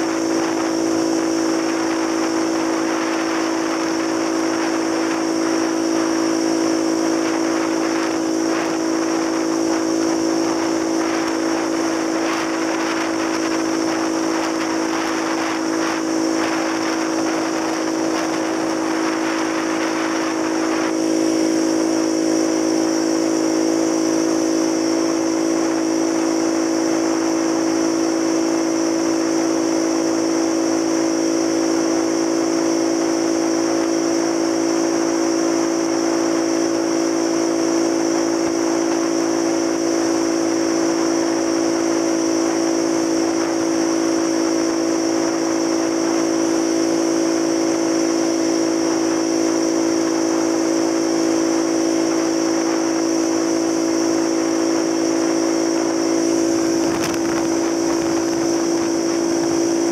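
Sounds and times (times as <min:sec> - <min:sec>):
wind noise on microphone: 0:00.0 - 0:59.9
scooter engine running: 0:56.1 - 0:59.9.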